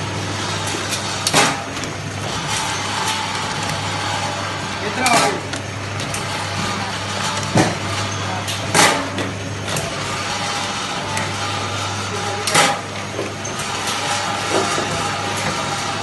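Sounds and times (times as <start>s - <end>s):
machine motor hum: 0.0s - 16.0s.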